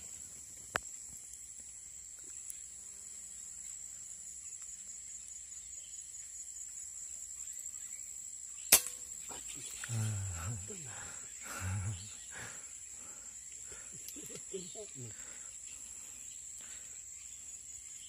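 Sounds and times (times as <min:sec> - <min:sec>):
insects droning: 0:00.0 - 0:18.0
air rifle shot: 0:08.7 - 0:09.0.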